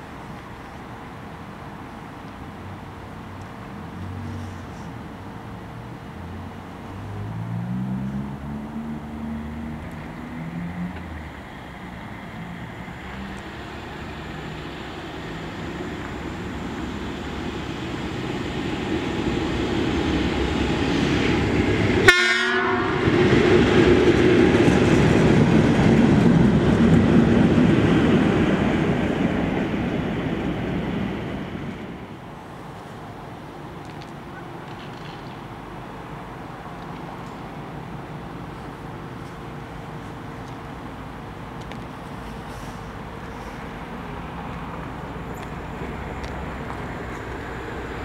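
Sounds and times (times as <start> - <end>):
diesel locomotive passing: 0.0 - 48.0
distant train horn: 22.0 - 23.2.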